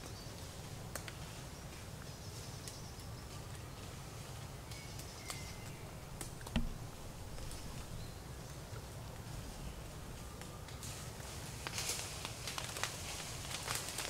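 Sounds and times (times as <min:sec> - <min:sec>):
dry leaves crackling and rustling: 0:00.0 - 0:14.0
low steady rumble: 0:00.2 - 0:13.6
faint bird chirps: 0:04.6 - 0:11.1
loud thump: 0:06.4 - 0:07.8.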